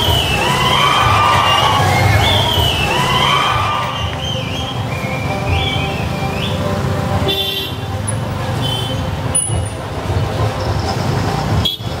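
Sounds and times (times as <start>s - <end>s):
crowd whistling: 0.0s - 7.8s
crowd: 0.0s - 12.0s
heavy vehicle engine running: 0.0s - 12.0s
vehicle horn: 4.0s - 9.5s, 11.6s - 12.0s.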